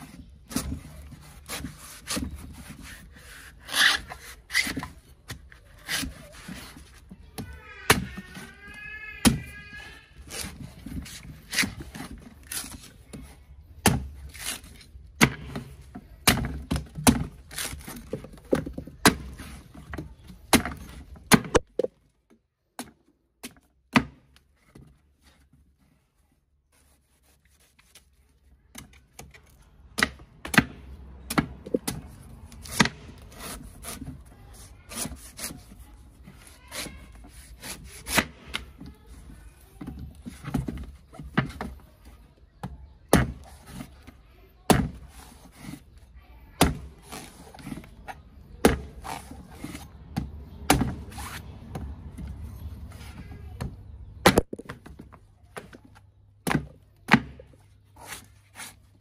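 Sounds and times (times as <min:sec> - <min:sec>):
machete chopping coconut husk: 0:13.8 - 0:18.2, 0:19.0 - 0:19.6, 0:30.0 - 0:35.6, 0:36.4 - 0:38.6, 0:44.7 - 0:45.8, 0:46.6 - 0:47.9, 0:48.6 - 0:51.9, 0:54.2 - 0:54.7, 0:56.4 - 0:57.4.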